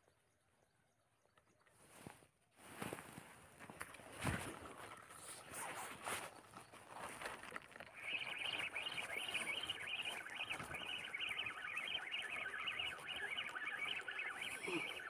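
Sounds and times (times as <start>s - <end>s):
high chirping animal calls: 7.9s - 15.0s.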